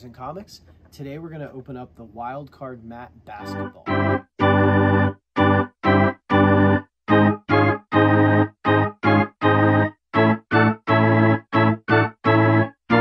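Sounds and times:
short keyboard chords: 3.3s - 13.0s.

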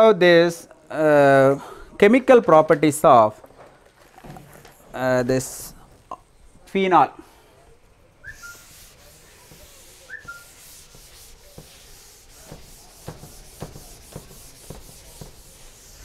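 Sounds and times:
duster wiping a blackboard: 8.3s - 16.0s.

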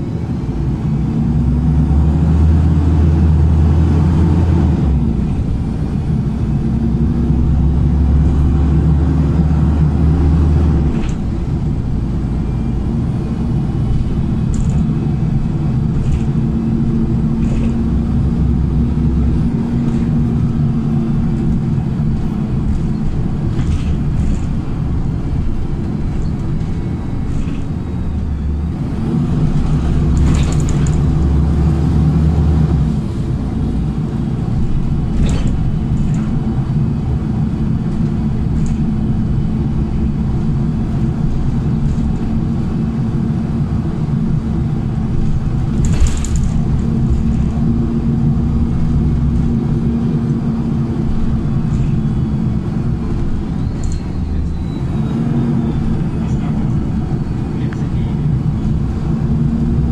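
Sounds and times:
bus engine hum: 0.0s - 59.9s
road rumble: 0.0s - 59.9s
brief clatter: 17.4s - 17.9s, 29.6s - 31.2s, 35.2s - 36.4s, 45.7s - 47.5s.

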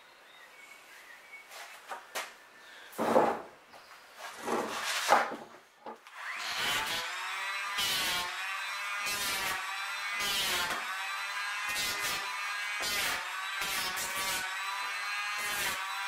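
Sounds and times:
wooden boards knocking and sliding: 3.0s - 3.5s, 4.4s - 6.0s
electric hand planer running: 6.2s - 16.0s.

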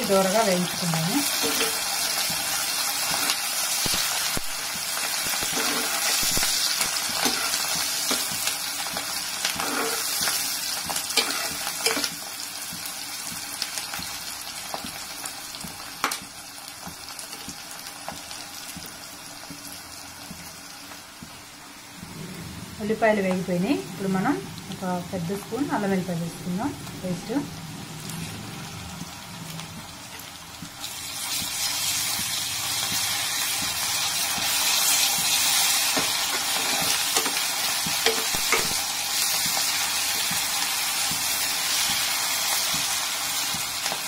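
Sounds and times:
onions sizzling in hot oil: 0.0s - 22.1s, 22.8s - 44.0s
steel spoon scraping metal pan: 9.6s - 10.3s, 11.2s - 12.1s.

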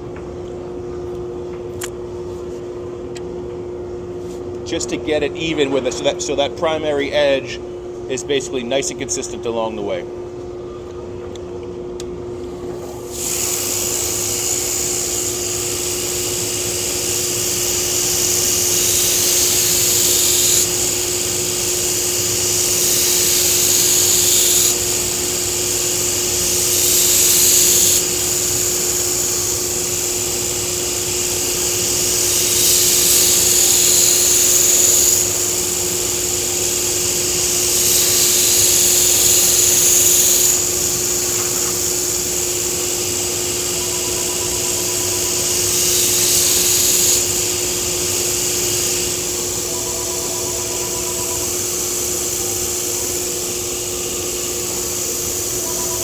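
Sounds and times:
belt grinder humming: 13.0s - 56.0s
blade grinding on belt: 13.1s - 56.0s.

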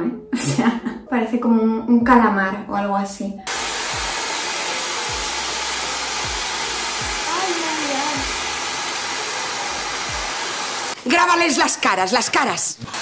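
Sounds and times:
hair dryer blowing: 3.5s - 11.5s.

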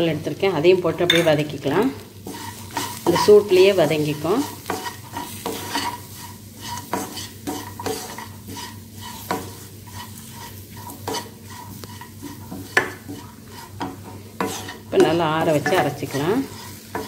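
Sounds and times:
light sizzle: 0.0s - 17.0s
spatula scraping and tapping pan: 1.1s - 17.0s.

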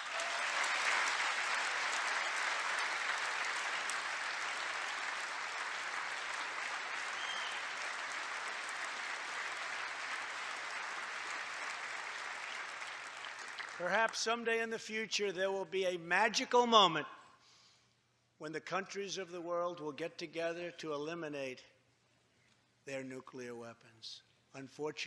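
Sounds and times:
audience applauding: 0.0s - 14.2s.

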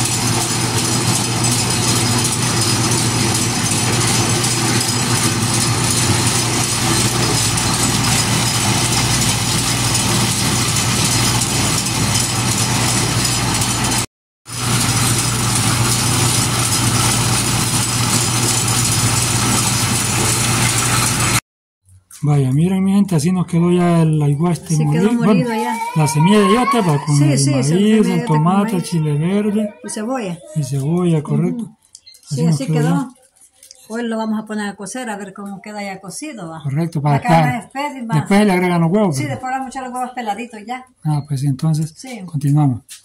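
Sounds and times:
grain mill grinding: 0.0s - 21.4s, 24.6s - 29.2s.

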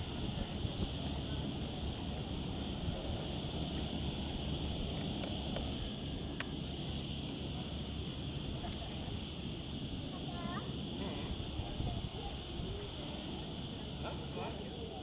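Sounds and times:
wind rumble on microphone: 0.0s - 5.9s, 11.0s - 13.2s
cicadas droning: 0.0s - 15.0s.

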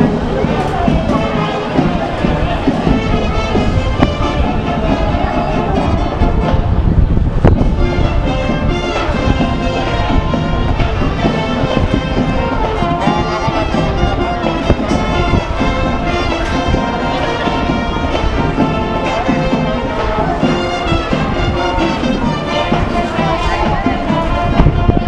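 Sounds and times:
brass band playing: 0.0s - 25.0s
crowd noise: 0.0s - 25.0s
street noise: 0.0s - 25.0s.

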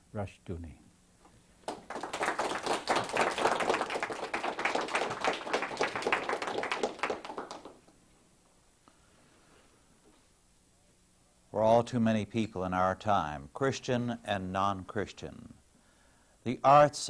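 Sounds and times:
audience applauding: 1.6s - 7.9s.

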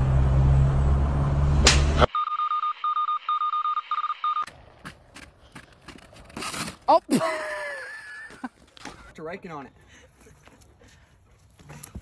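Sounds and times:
vehicle rumble on road: 0.0s - 2.1s.

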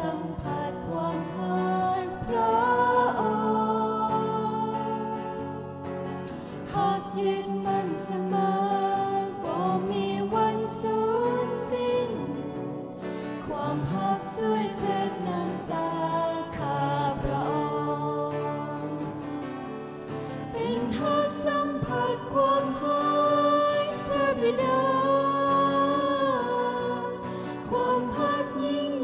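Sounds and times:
person singing long notes: 6.6s - 19.5s, 20.5s - 29.0s.

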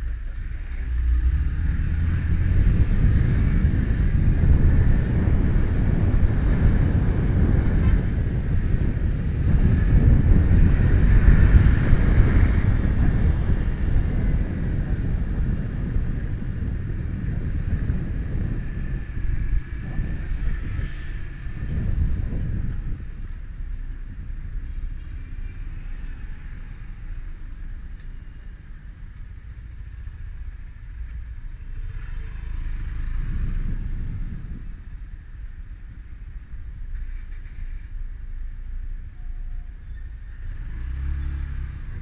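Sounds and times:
wind buffeting microphone: 0.0s - 30.9s, 31.6s - 39.1s, 40.2s - 42.0s
motorcycle running: 1.7s - 27.6s.

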